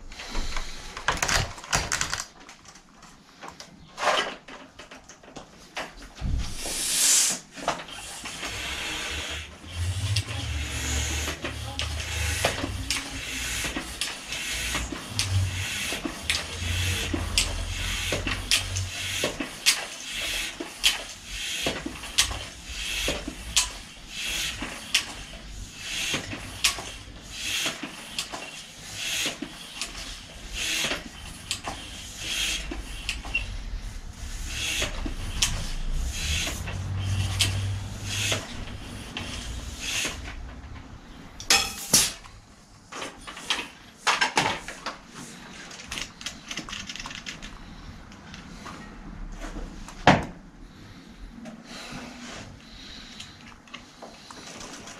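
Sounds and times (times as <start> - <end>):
tools clicking and scraping on metal: 10.0 - 33.4.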